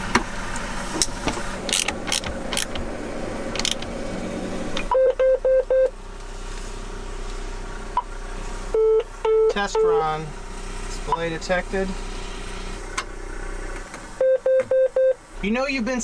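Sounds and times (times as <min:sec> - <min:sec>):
sharp clicks and knocks: 0:01.0 - 0:02.9, 0:03.5 - 0:03.9.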